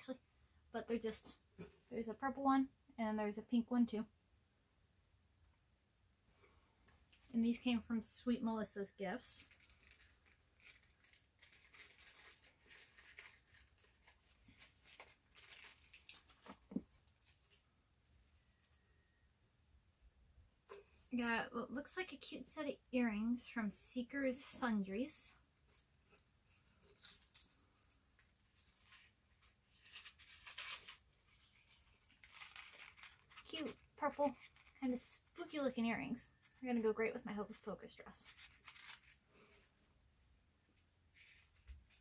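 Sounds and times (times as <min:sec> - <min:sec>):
plastic bag and card rustling: 0:09.2 - 0:18.8, 0:24.4 - 0:35.7, 0:37.4 - 0:39.6
gift bag rustling: 0:09.4 - 0:18.8, 0:38.3 - 0:39.6.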